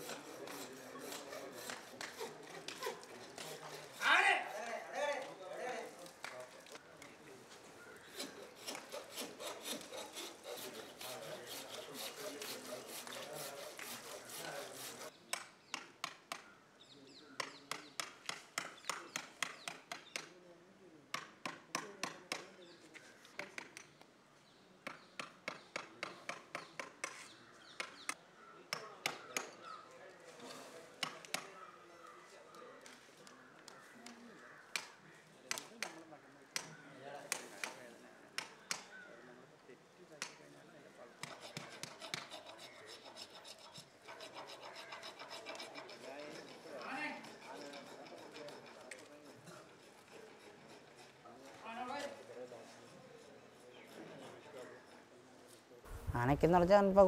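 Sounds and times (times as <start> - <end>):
hand tool rasping on tusk: 0.0 - 4.6, 8.0 - 15.2, 41.2 - 55.2
chisel knocking into ivory: 17.4 - 20.3, 21.1 - 22.5.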